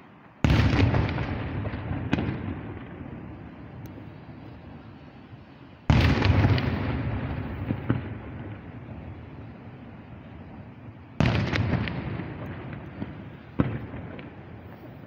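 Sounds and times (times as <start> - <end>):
firework sharp crack: 0.3 - 15.0
firework booms with rumble: 0.4 - 3.5, 5.8 - 9.3, 10.3 - 15.0.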